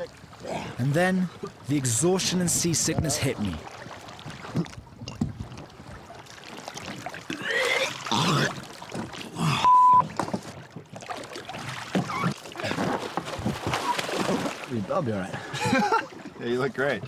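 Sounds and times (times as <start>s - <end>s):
water lapping and splashing: 0.0s - 17.0s
man retching and groaning: 7.3s - 8.6s, 9.2s - 9.7s
short high bleep: 9.6s - 10.1s.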